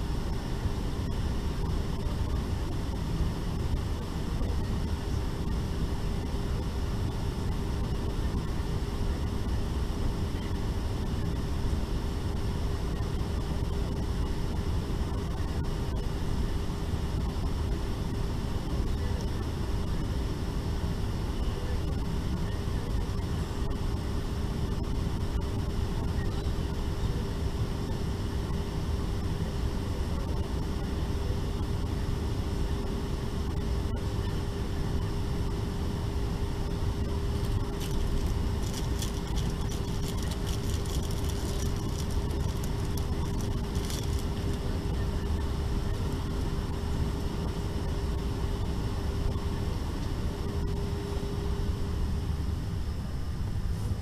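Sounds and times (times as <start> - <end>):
constant mid-pitched hum: 0.0 - 54.0
cabin air-conditioning rush: 14.5 - 54.0.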